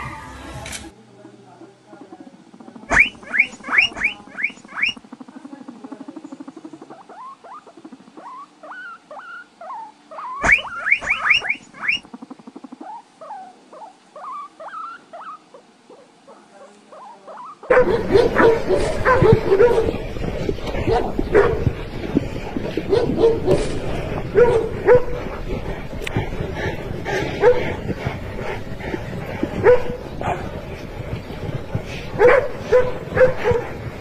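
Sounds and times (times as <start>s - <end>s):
small animal squeaking: 1.7s - 17.7s
dog whining and yipping: 7.1s - 12.0s, 12.8s - 15.4s.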